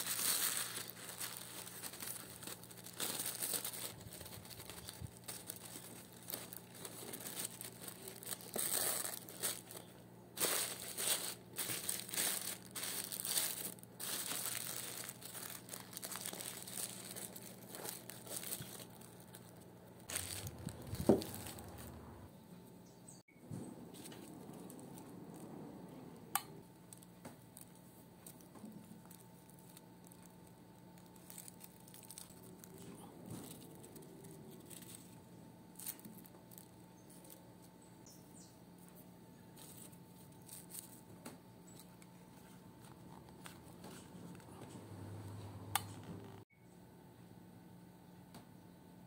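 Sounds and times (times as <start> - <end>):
paper rustling: 0.0 - 22.2, 27.0 - 35.2, 39.5 - 41.1, 41.7 - 44.8
low steady hum: 0.0 - 49.0.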